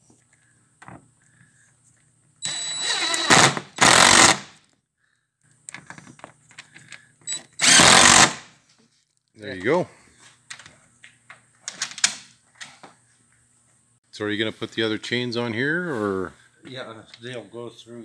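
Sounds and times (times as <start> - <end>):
impact driver bursts: 2.4 - 4.6, 7.3 - 8.5.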